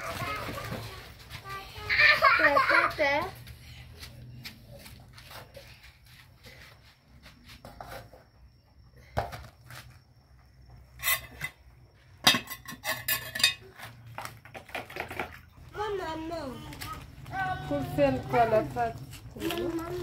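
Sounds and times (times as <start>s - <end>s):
metal utensils scraping a pot: 11.0s - 11.6s, 12.3s - 13.8s.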